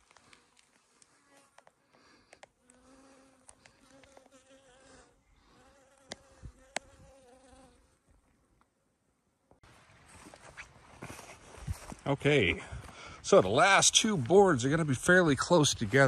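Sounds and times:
insect buzzing: 0.9s - 7.9s.

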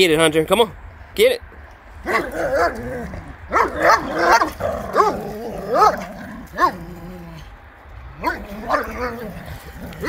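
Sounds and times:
dogs bark-yelping: 2.0s - 10.0s
dog growling: 2.1s - 10.0s.

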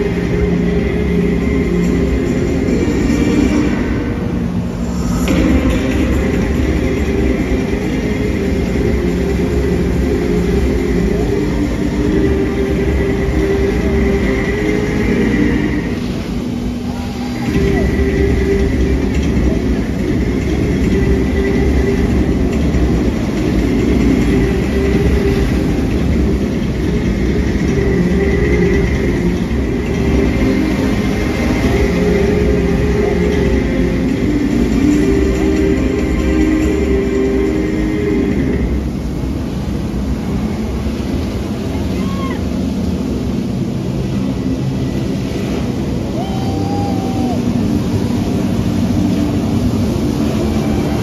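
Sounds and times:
jet ski engine running: 0.0s - 51.0s
water jets rushing: 0.0s - 51.0s.

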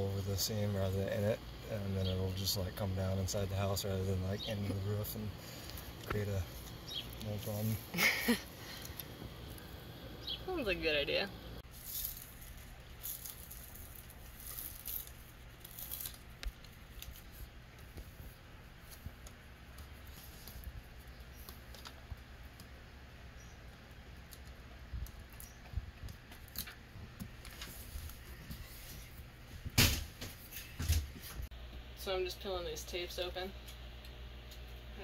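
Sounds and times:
low steady rumble: 0.0s - 21.4s
tape being peeled and rustling: 11.6s - 22.6s, 24.2s - 31.4s.

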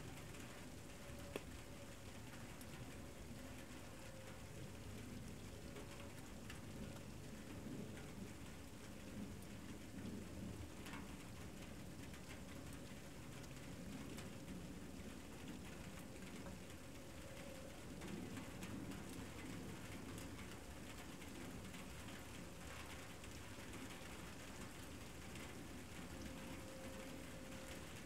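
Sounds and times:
light rain patter: 0.0s - 28.0s
rain drop ticks: 0.0s - 28.0s.

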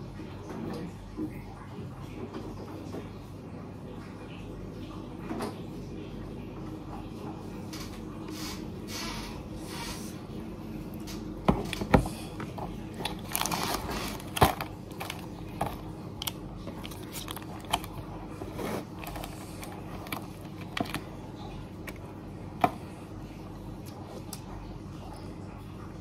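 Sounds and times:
person chewing and slurping noodles: 11.6s - 21.2s.

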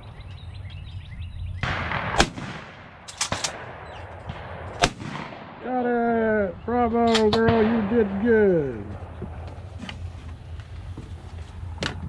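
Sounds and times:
shotgun shots: 1.6s - 5.9s, 7.0s - 9.4s.

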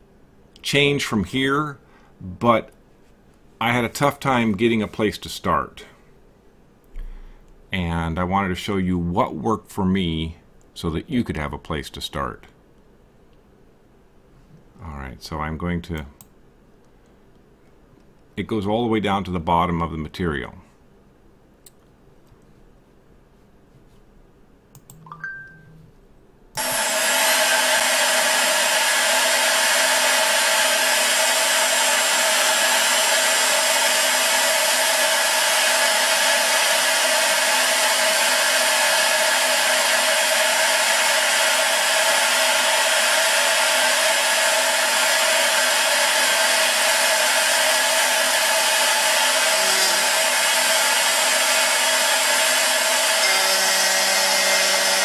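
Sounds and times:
mouse click: 24.7s - 25.1s
router spindle cutting metal: 26.6s - 55.0s.

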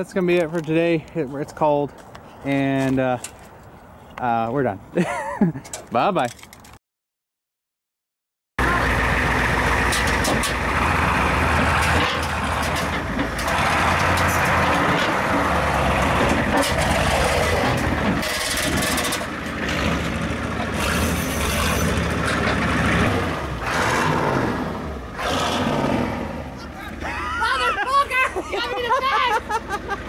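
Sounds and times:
diesel truck engine idling: 8.6s - 30.0s.

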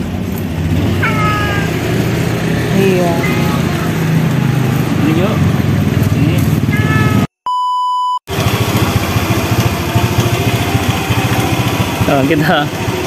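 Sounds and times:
motorbike engine running: 0.0s - 7.3s, 8.3s - 13.0s
steady beep tone: 7.4s - 8.2s.

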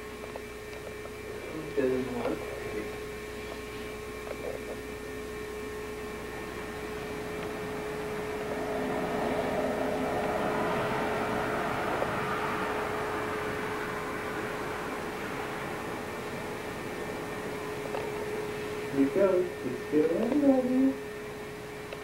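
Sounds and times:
electrical hum: 0.0s - 22.0s
broad rush of noise: 6.4s - 18.0s.

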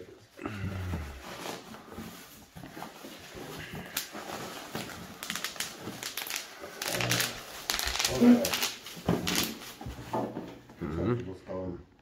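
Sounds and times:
bubble wrap rustling: 0.0s - 10.4s
bubble wrap crackling: 0.5s - 9.9s.

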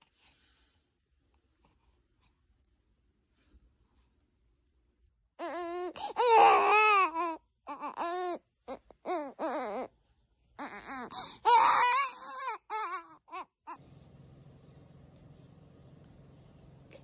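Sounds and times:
baby crying: 5.4s - 9.9s, 10.6s - 13.8s.

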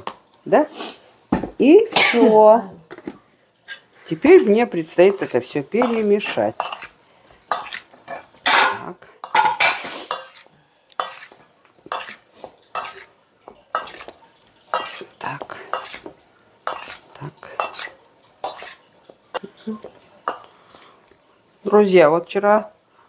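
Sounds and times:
metal spoon scraping steel bowl: 3.7s - 14.1s, 14.7s - 18.8s.

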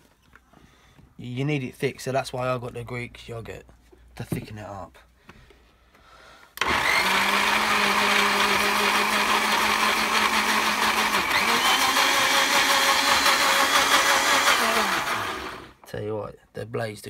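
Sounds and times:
blender motor running: 6.6s - 15.8s.

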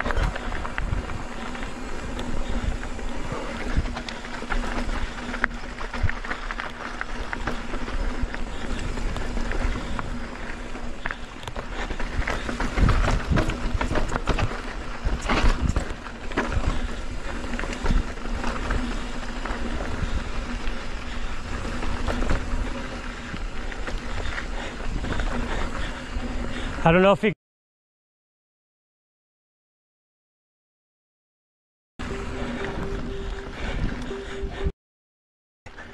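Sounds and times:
bike rattling over bumps: 0.0s - 26.8s
wind rumble on microphone: 0.0s - 26.8s
bike tyres on dirt: 0.0s - 27.2s, 32.0s - 34.7s, 35.7s - 35.9s.

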